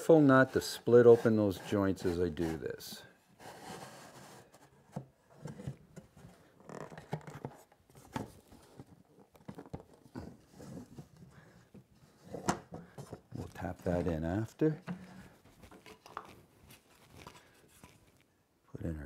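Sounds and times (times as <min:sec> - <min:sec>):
wood scraping: 0:00.0 - 0:18.3.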